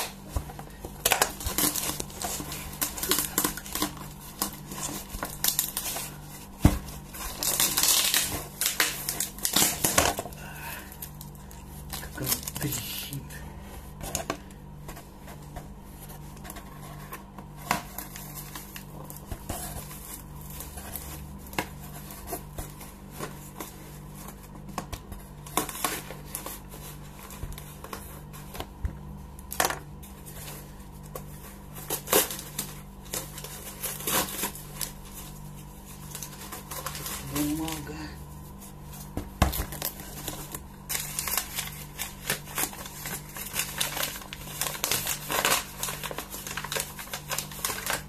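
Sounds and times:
steady low hum: 0.0s - 48.0s
knife cutting packing tape: 7.2s - 10.2s, 31.9s - 35.0s, 39.6s - 48.0s.

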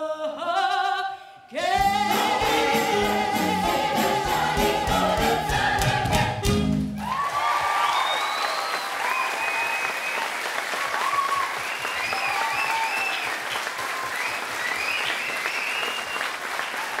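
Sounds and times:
people cheering and whooping: 7.0s - 14.9s
audience applauding: 7.0s - 17.0s.

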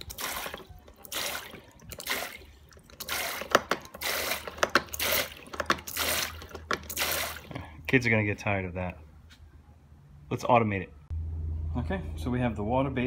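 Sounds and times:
plunger pump clicks: 0.0s - 7.6s
water spurting from toy faucet: 0.0s - 7.6s.

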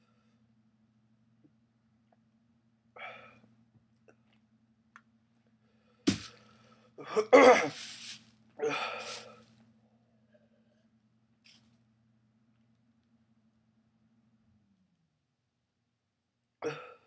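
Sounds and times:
man coughing and hacking: 6.1s - 6.3s, 7.0s - 7.8s, 16.6s - 17.0s.

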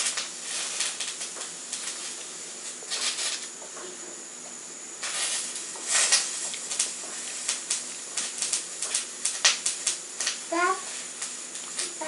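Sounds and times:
rustling scrapes: 2.0s - 3.5s, 5.0s - 6.4s.

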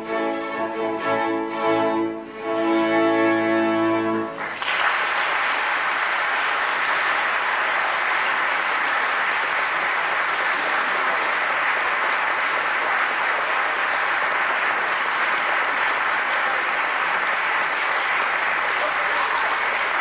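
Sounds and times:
audience applause: 4.3s - 20.0s.

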